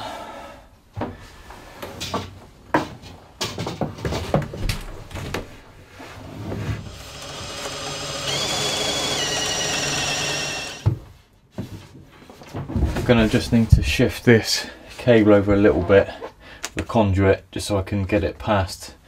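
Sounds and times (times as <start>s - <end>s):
copper pipe knocking and clattering: 2.0s - 5.5s
power drill whining: 6.9s - 10.9s.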